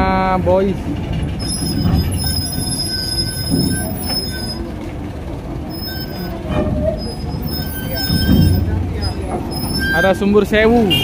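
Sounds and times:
truck engine rumble: 0:00.0 - 0:11.0
high-pitched squealing: 0:01.4 - 0:04.8, 0:05.7 - 0:10.6
metal clank: 0:06.0 - 0:09.8.

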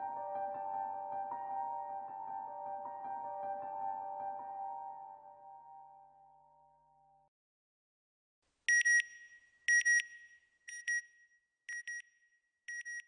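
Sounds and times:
soft background music: 0:00.0 - 0:07.2.

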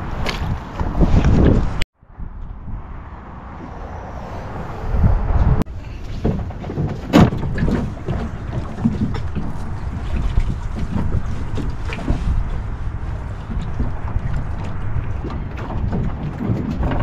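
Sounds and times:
wind buffeting microphone: 0:00.0 - 0:17.0
waves slapping metal boat hull: 0:05.7 - 0:17.0
water splashes: 0:06.0 - 0:17.0.

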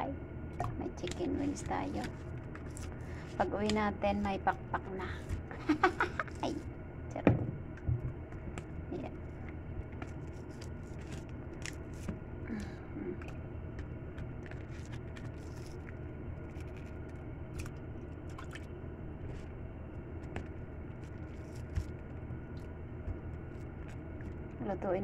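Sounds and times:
steady low hum: 0:00.0 - 0:25.0
wet squishing of raw chicken: 0:13.7 - 0:19.5, 0:20.2 - 0:24.6.

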